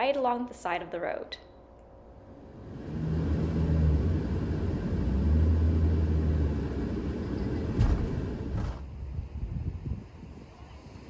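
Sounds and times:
van driving on sand: 0:02.5 - 0:09.1.

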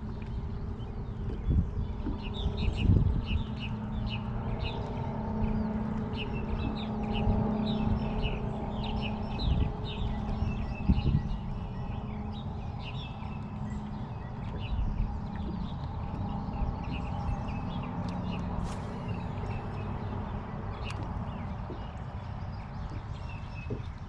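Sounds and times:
steady low hum: 0:00.0 - 0:24.0
small birds chirping: 0:05.5 - 0:24.0.

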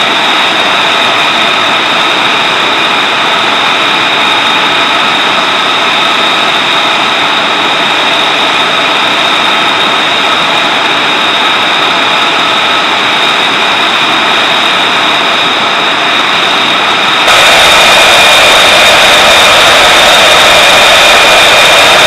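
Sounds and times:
jet engine roar with whine: 0:00.0 - 0:22.0.

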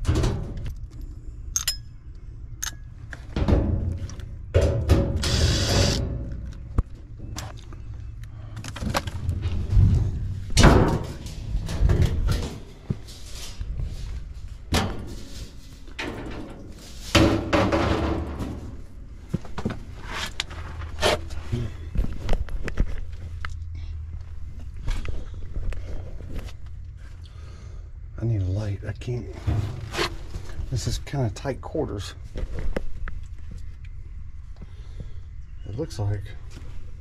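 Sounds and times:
thin metal panel scraping and rattling: 0:14.7 - 0:18.8, 0:29.3 - 0:30.6.

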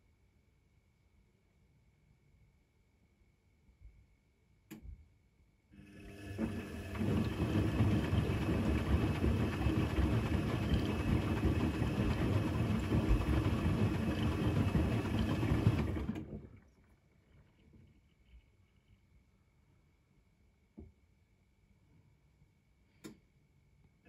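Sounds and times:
washing machine drum tumbling: 0:06.2 - 0:16.6.

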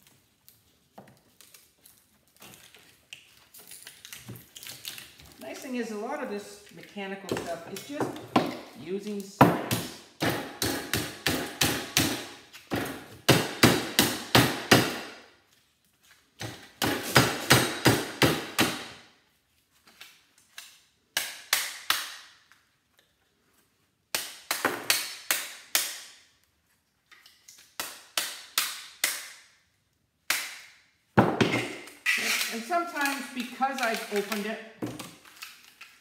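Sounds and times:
hammer striking steel: 0:09.4 - 0:12.3.

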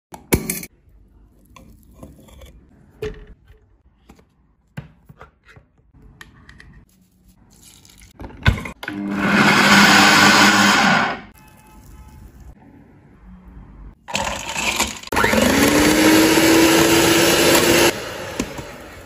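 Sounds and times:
blender running: 0:08.8 - 0:11.3, 0:14.1 - 0:19.0.

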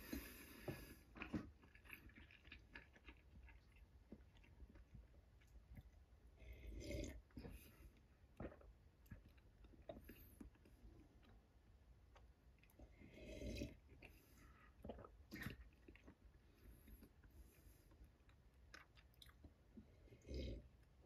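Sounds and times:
chewing mouth sounds: 0:01.1 - 0:06.0, 0:18.2 - 0:20.5.

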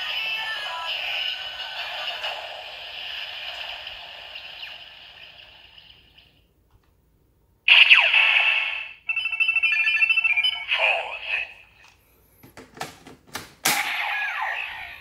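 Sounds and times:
tinny toy electronic sound effects: 0:00.0 - 0:06.4, 0:07.7 - 0:11.7, 0:13.8 - 0:15.0.

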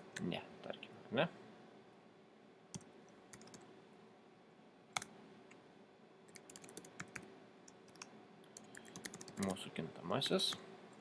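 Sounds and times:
computer keyboard typing: 0:02.7 - 0:03.6, 0:06.3 - 0:09.5.

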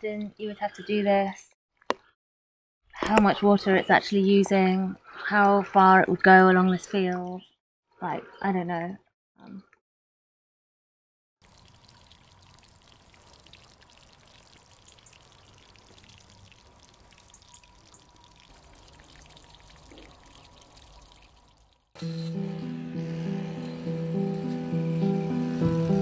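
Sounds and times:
water drips: 0:11.4 - 0:22.0
trickle of running water: 0:11.4 - 0:22.6.

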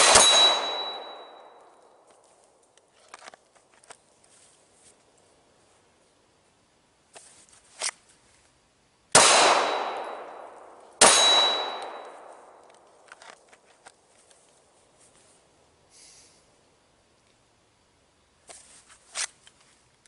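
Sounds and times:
pistol shots with echo: 0:00.0 - 0:01.6, 0:09.1 - 0:12.6
high-pitched ring: 0:00.1 - 0:01.8, 0:11.0 - 0:12.2.

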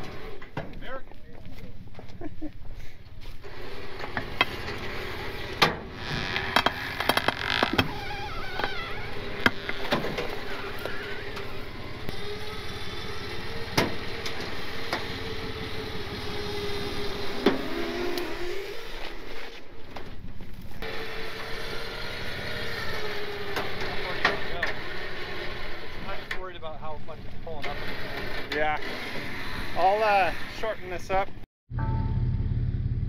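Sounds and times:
electric winch motor whining: 0:03.4 - 0:19.6, 0:20.8 - 0:26.3, 0:27.6 - 0:30.7.

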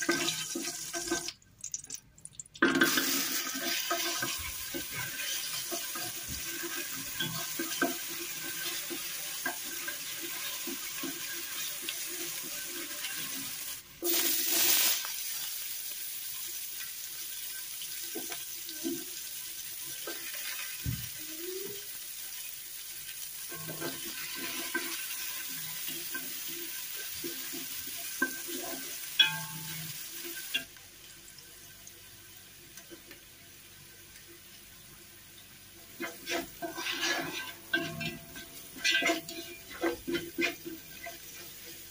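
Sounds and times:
garlic and spices sizzling: 0:00.0 - 0:41.9
wooden spoon scraping pot: 0:36.0 - 0:41.4.

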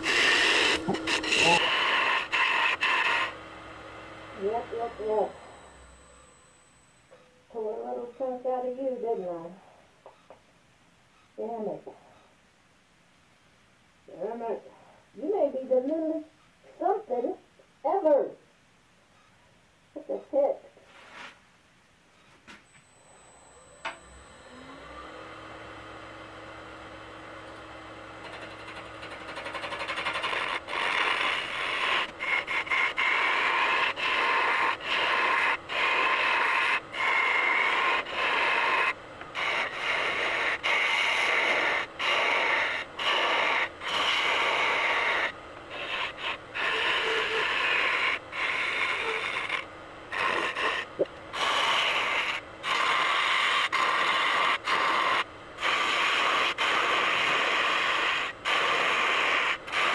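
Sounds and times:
gouge cutting spinning wood: 0:00.0 - 0:06.0, 0:23.9 - 0:59.9
lathe motor humming: 0:00.0 - 0:07.1, 0:22.8 - 0:59.9.

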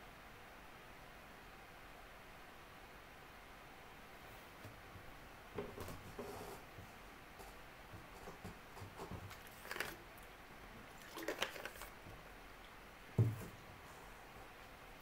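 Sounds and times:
soft thump: 0:13.2 - 0:13.6.

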